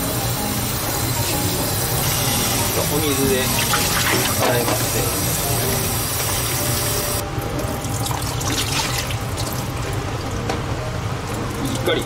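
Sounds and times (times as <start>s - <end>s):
water splashing and trickling: 3.5s - 4.6s, 7.8s - 10.0s
tap running into colander: 3.5s - 5.1s.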